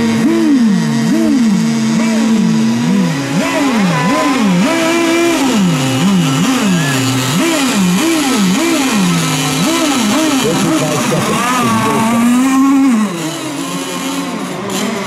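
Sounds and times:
model boat engines revving: 0.0s - 15.0s.

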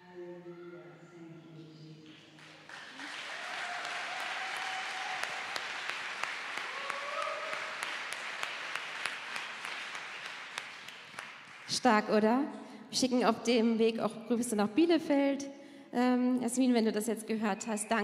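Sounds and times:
crowd applauding: 2.1s - 11.8s.

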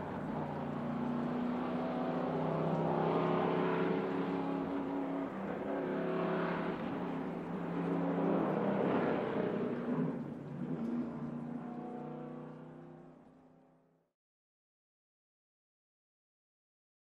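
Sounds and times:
distant race car engine accelerating: 0.0s - 13.6s.

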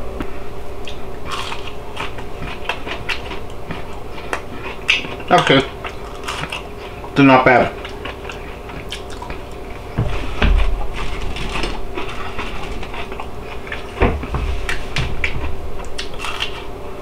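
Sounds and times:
person chewing crisp food: 0.8s - 16.8s
low thumps: 9.8s - 12.9s.

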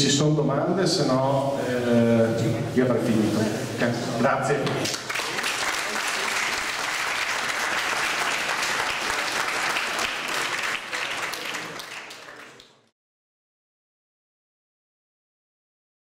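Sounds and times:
audience applauding: 4.8s - 12.9s.

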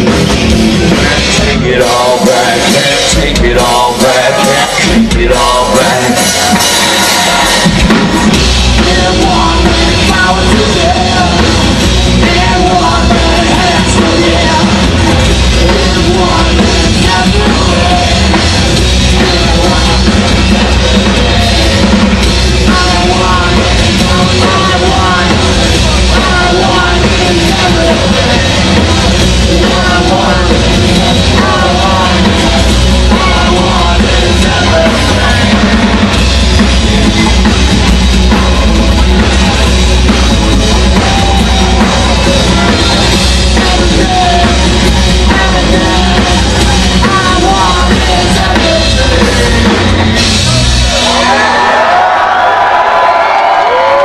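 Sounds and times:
drums: 0.0s - 54.0s
man singing into microphone: 0.8s - 7.6s, 8.7s - 21.8s, 22.6s - 36.1s, 41.0s - 50.2s.

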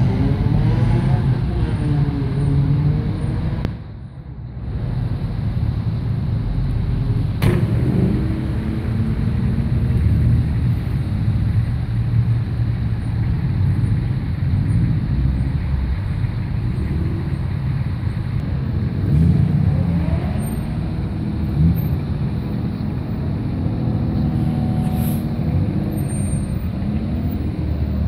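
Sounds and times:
cars driving past: 0.0s - 28.0s.

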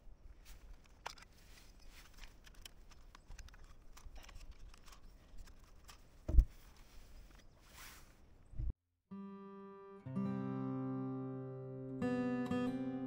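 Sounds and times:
small plastic clicks: 0.6s - 6.3s.

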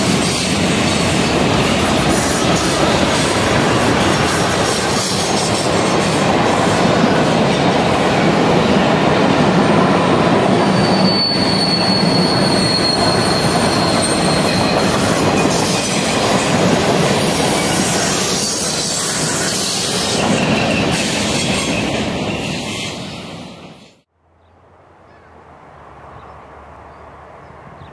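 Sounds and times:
train wheels rolling on rail: 0.0s - 24.1s
high-pitched wheel squeal: 10.5s - 16.0s.

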